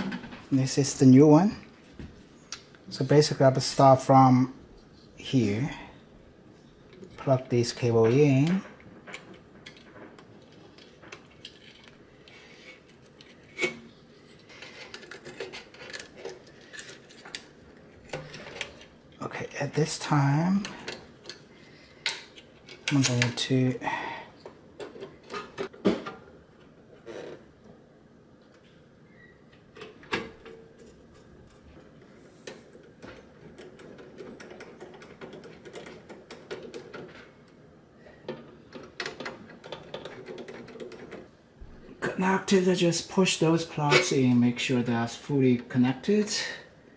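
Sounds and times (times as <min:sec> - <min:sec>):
clicks and rustles of wiring plugs: 0:06.9 - 0:23.7, 0:29.5 - 0:41.4
screwdriver handling: 0:14.3 - 0:18.9.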